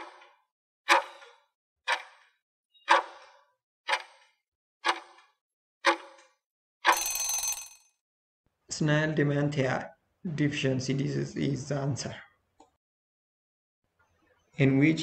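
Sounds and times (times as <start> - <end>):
clock-like ticks: 0.9 - 3.3, 3.9 - 6.3
ringing bell tone: 6.9 - 7.8.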